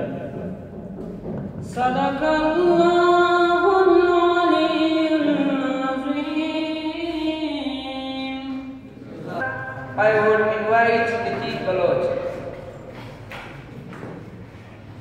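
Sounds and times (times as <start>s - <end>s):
boy chanting into microphone: 1.6s - 12.4s.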